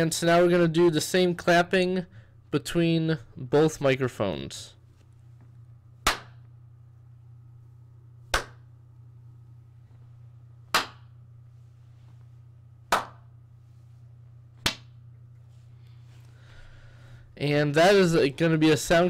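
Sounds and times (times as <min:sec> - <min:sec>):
low steady microphone hum: 0:00.0 - 0:19.0
hand claps: 0:06.0 - 0:06.5, 0:08.3 - 0:08.7, 0:10.7 - 0:11.1, 0:12.9 - 0:13.3, 0:14.6 - 0:15.0.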